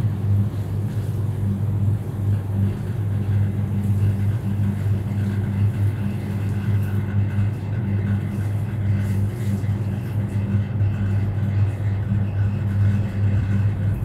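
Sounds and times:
low machine hum: 0:00.0 - 0:14.0.

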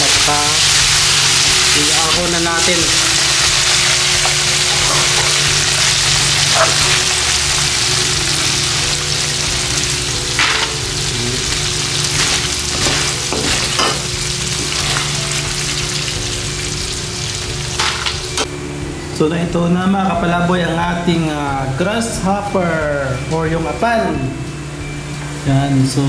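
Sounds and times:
insects sizzling in hot oil: 0:00.0 - 0:18.5.

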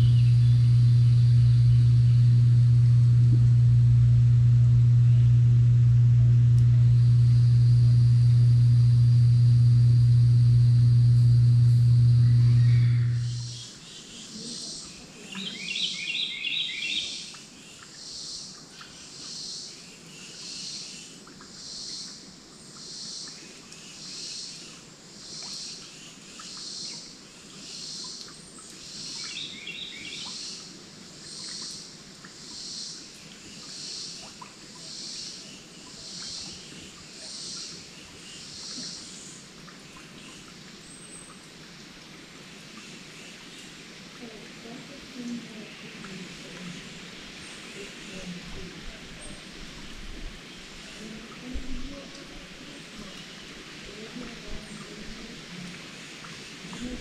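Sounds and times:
high pulsing call: 0:00.0 - 0:13.7.

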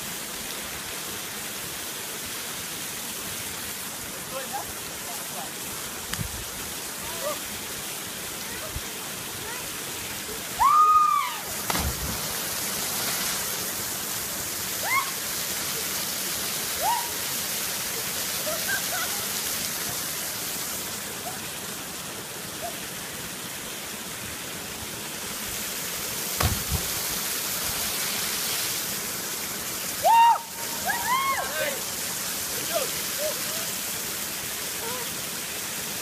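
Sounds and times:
waterfall pouring over rock: 0:00.0 - 0:36.0
splash with low thump: 0:11.6 - 0:13.5, 0:26.3 - 0:27.2.

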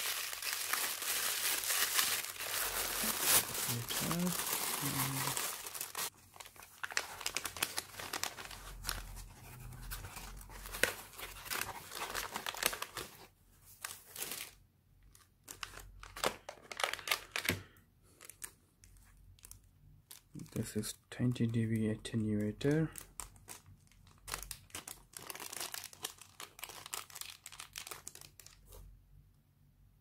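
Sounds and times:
plastic bags handled: 0:00.0 - 0:17.6, 0:22.9 - 0:28.7
paper packaging crinkling: 0:00.0 - 0:20.6, 0:22.6 - 0:28.8.

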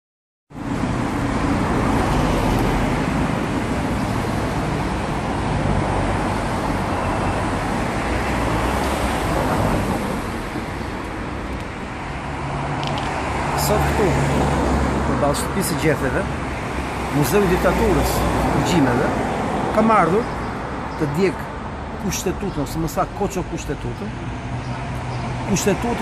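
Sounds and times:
car engines rumbling: 0:00.5 - 0:26.0.

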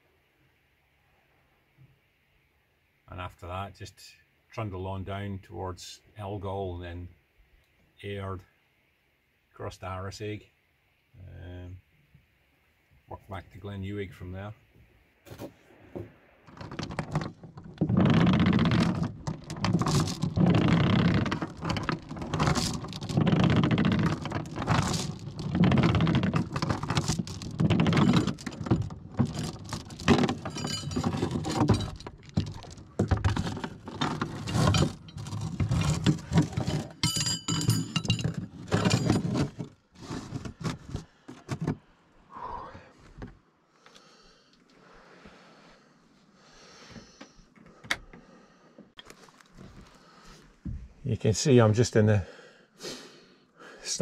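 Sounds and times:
anchor chain clanking over roller: 0:16.5 - 0:40.7.

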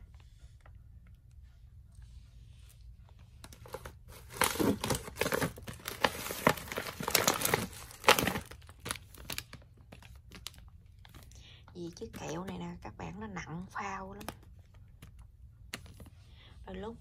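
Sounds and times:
plastic wrappers crinkling: 0:03.4 - 0:12.5.

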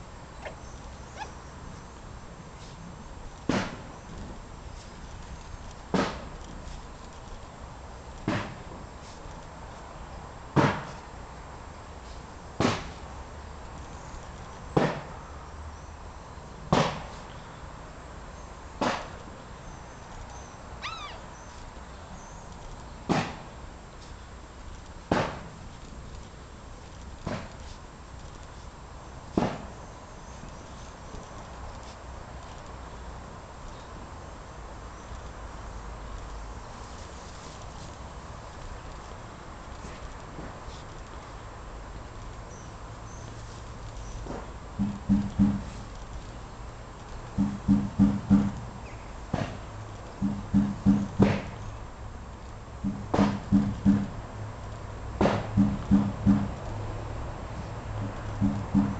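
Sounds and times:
sharp knock: 0:44.8 - 0:45.7, 0:47.4 - 0:48.6, 0:50.2 - 0:51.5, 0:52.8 - 0:54.1, 0:55.2 - 0:56.6, 0:58.4 - 0:58.9.

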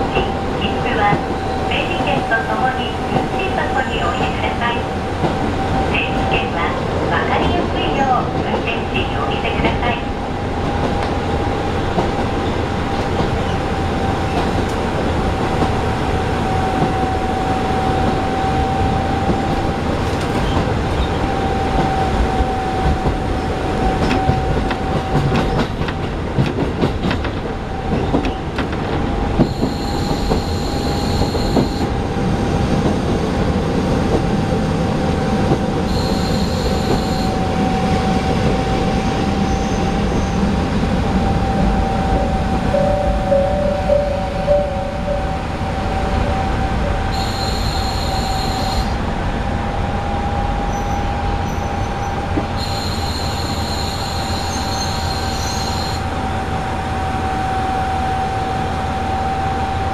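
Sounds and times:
train wheels rumbling on rails: 0:00.0 - 0:59.9
short high-pitched tones: 0:35.9 - 0:37.4, 0:42.1 - 0:48.9.

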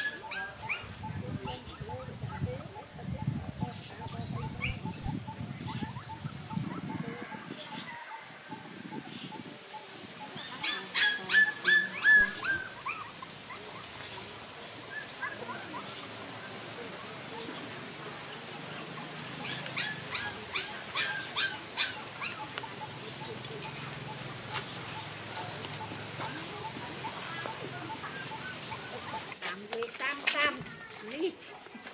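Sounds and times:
puppy whimpering: 0:00.0 - 0:00.9, 0:10.4 - 0:13.8, 0:14.9 - 0:16.6, 0:18.7 - 0:22.5, 0:27.9 - 0:29.2.

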